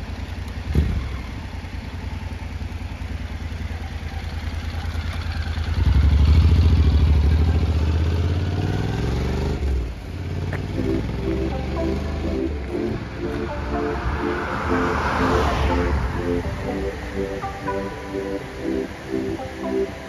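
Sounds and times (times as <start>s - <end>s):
motorcycle engine idling: 0.0s - 8.0s
motorcycle pulling away: 0.0s - 13.4s.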